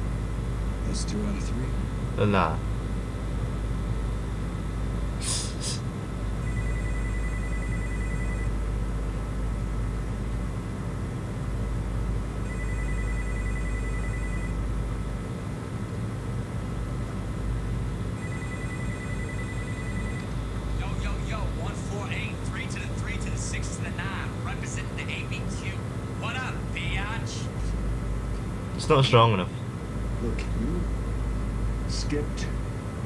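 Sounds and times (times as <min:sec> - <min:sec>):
low hum: 0:00.0 - 0:33.0
electronic phone ringing: 0:06.4 - 0:08.6, 0:12.4 - 0:14.6, 0:18.2 - 0:20.4.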